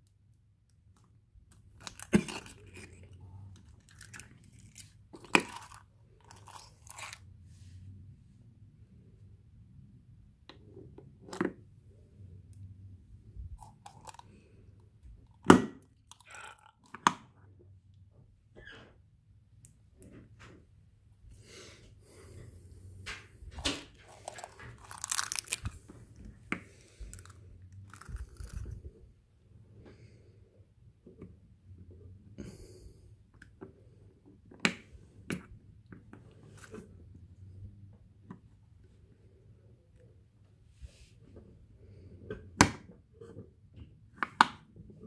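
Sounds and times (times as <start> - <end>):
crackling handling noise: 0.7 - 7.3, 13.6 - 17.1, 23.0 - 29.0.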